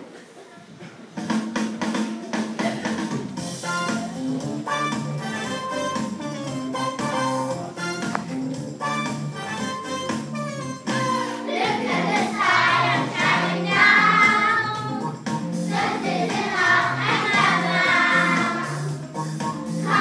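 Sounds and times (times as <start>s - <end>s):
musical accompaniment: 1.2s - 20.0s
children singing: 11.2s - 15.0s, 15.7s - 19.0s, 19.8s - 20.0s.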